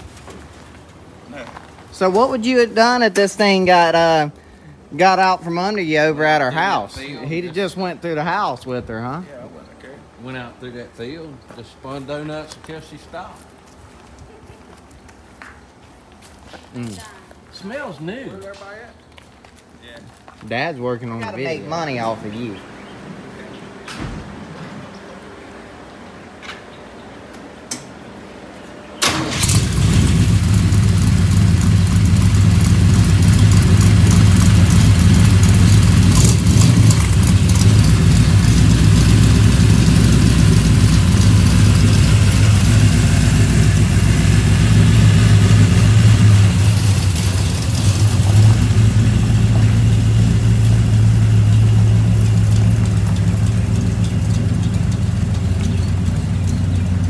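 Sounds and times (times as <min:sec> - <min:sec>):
vehicle engine starting and idling: 0:28.9 - 0:57.0.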